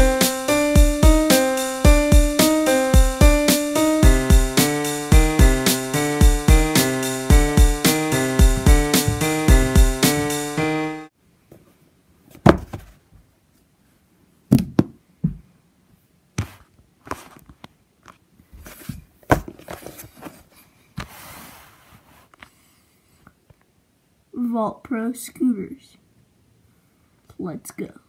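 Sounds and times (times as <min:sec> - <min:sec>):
dull thumps and knocks: 0:08.6 - 0:10.4.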